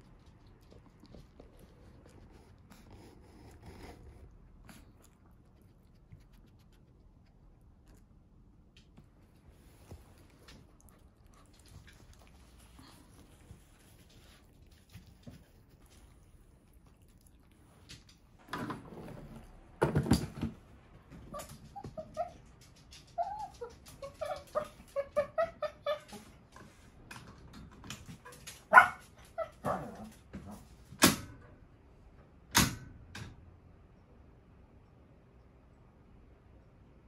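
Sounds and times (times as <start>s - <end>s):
small dog whining: 23.1s - 26.3s.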